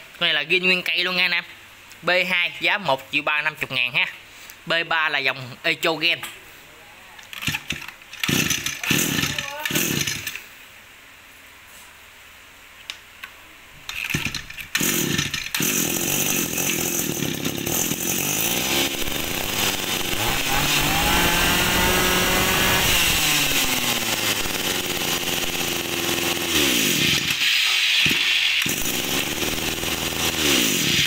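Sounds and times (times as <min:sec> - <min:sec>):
brush cutter engine revving: 0:07.4 - 0:10.4, 0:14.1 - 0:31.0
brush cutter pull-start: 0:07.4 - 0:10.4, 0:13.9 - 0:31.0.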